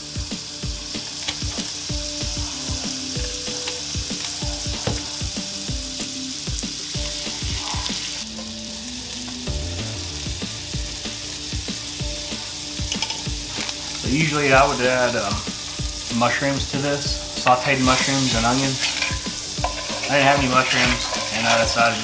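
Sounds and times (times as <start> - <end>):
butter sizzling in a skillet: 0.0 - 22.0
fork scraping a pan: 7.5 - 8.5, 17.8 - 22.0.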